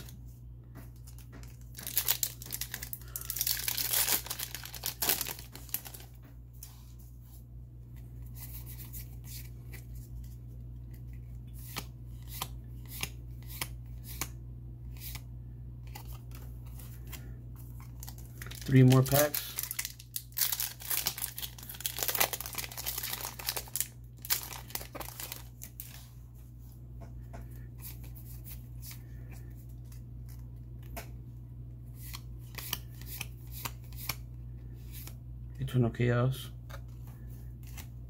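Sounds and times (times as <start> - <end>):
steady low hum: 0.0 - 38.0
foil pack tearing and crinkling: 1.7 - 6.1, 18.0 - 25.9.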